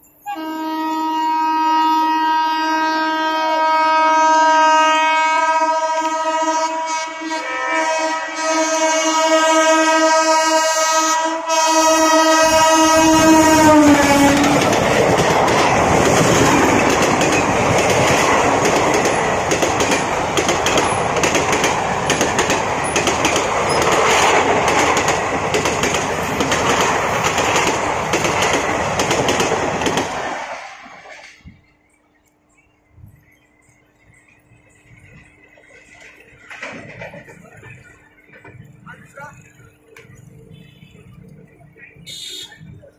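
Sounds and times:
train coaches rattling past: 0:00.0 - 0:42.9
locomotive horn blast: 0:00.2 - 0:14.7, 0:40.4 - 0:42.9.

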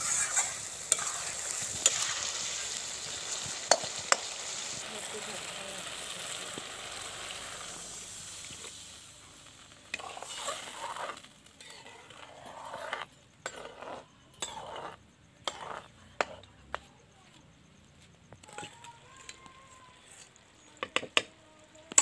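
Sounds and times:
metal spatula scraping pan: 0:00.0 - 0:04.8, 0:09.9 - 0:16.5
frying sizzle: 0:00.0 - 0:14.8.

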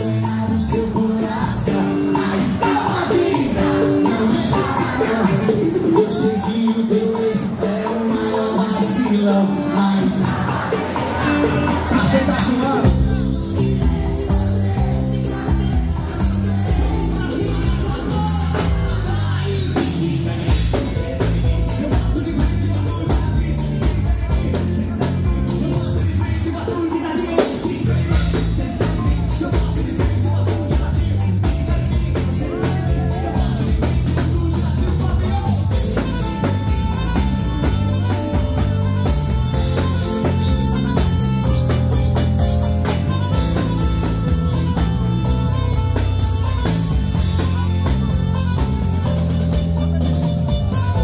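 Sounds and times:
person singing: 0:00.0 - 0:51.0
song with drums and bass: 0:00.0 - 0:51.0.

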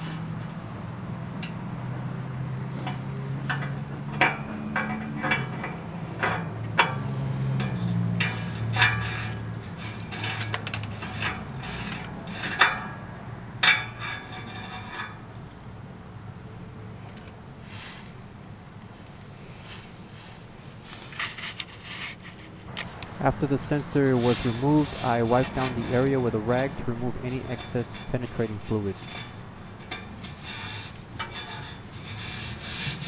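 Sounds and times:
low steady hum: 0:21.6 - 0:32.0.

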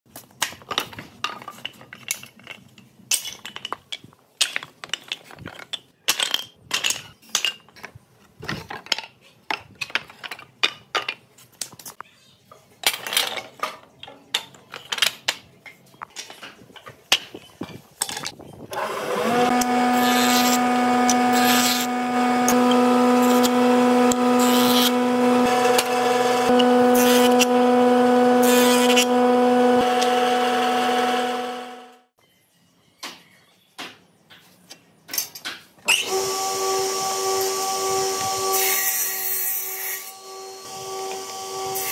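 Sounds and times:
wooden offcuts clattering: 0:00.1 - 0:12.0, 0:12.8 - 0:18.4
jointer-planer whining: 0:18.7 - 0:32.1, 0:36.0 - 0:39.0, 0:40.0 - 0:41.9.

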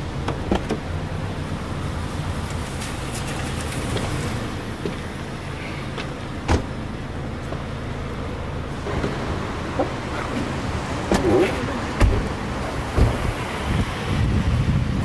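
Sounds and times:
car engine idling: 0:00.0 - 0:14.2
car door clicks and knocks: 0:00.2 - 0:00.9, 0:06.0 - 0:06.8, 0:11.1 - 0:13.4.

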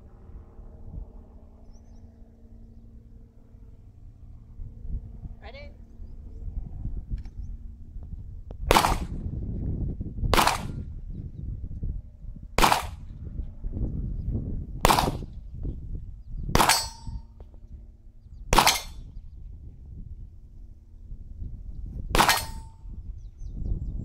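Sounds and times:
pistol shots: 0:08.7 - 0:09.1, 0:10.4 - 0:10.8, 0:12.6 - 0:13.0, 0:14.9 - 0:15.2, 0:16.6 - 0:17.0, 0:18.6 - 0:19.0, 0:22.2 - 0:22.7.

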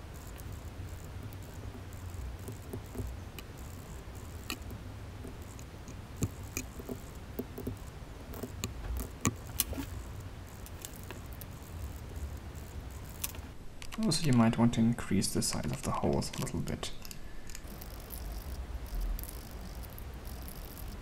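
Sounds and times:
steady low hum: 0:00.0 - 0:13.9, 0:14.6 - 0:21.0
plastic parts clicking and tapping: 0:00.2 - 0:14.0.

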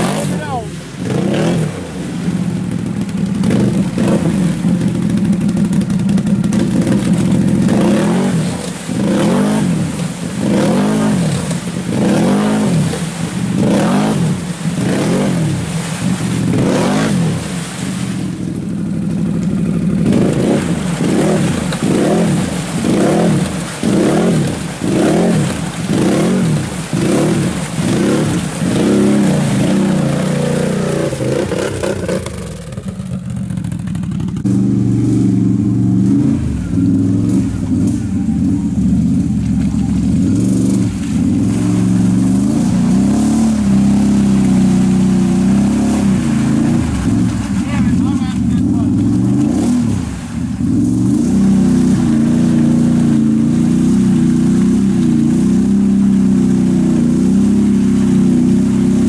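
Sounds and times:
atv engine revving: 0:00.0 - 0:59.0.

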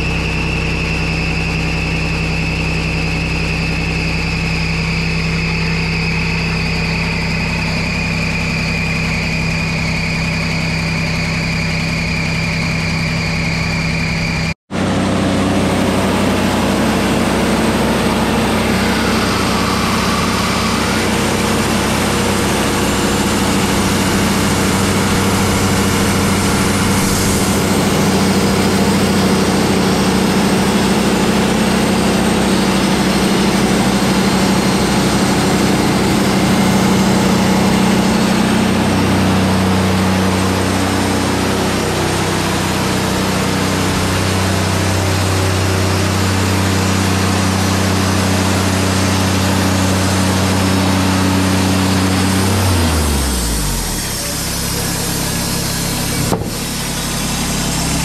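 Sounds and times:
high whine: 0:00.0 - 0:58.0
sawmill engine running: 0:00.0 - 0:58.0.

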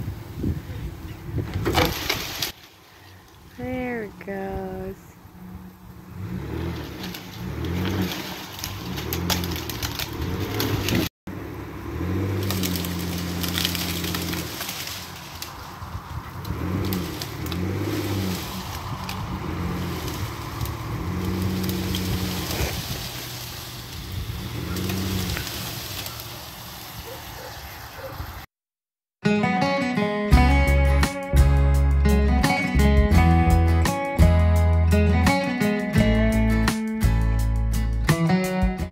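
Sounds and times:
wind buffeting microphone: 0:00.0 - 0:02.1, 0:15.5 - 0:25.7.

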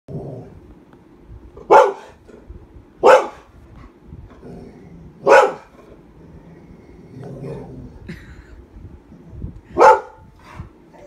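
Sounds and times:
dog growling low: 0:00.1 - 0:00.6, 0:04.3 - 0:05.2, 0:05.8 - 0:08.1
dog barking: 0:01.7 - 0:02.2, 0:03.0 - 0:03.5, 0:05.2 - 0:05.7, 0:09.8 - 0:10.2.

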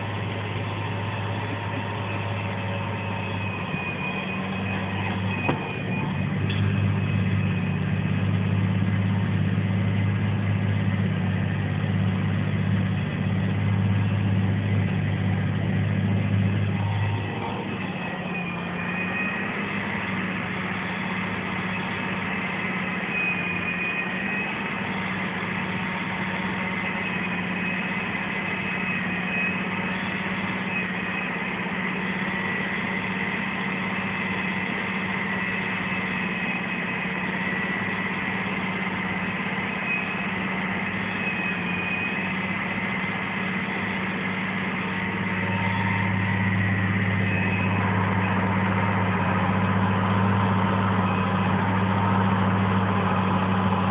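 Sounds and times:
vehicle engine drone: 0:00.0 - 0:53.9
faint high whine: 0:44.9 - 0:52.8.

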